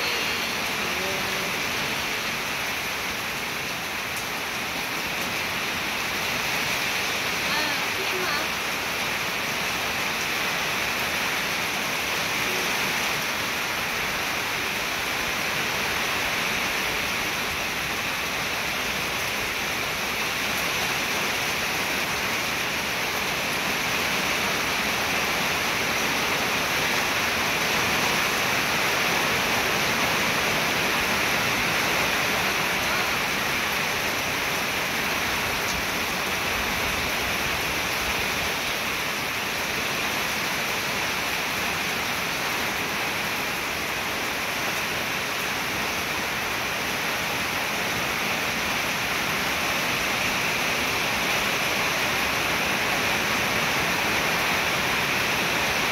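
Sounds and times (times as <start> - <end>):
steady rain: 0.0 - 55.9.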